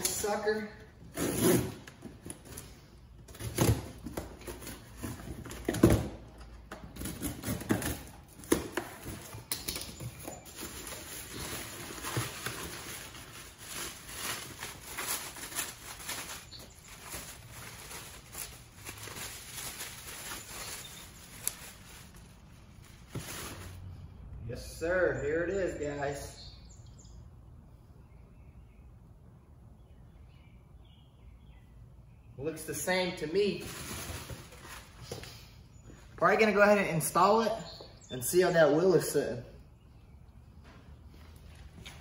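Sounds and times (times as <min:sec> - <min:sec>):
cardboard box rustling: 0:10.1 - 0:22.2.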